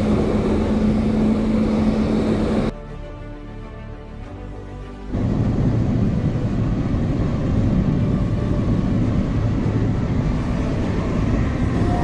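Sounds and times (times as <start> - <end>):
car engine: 0.0 - 2.7
wind noise: 0.0 - 2.7, 5.1 - 12.0
constant low hum: 0.0 - 2.8, 5.1 - 12.0.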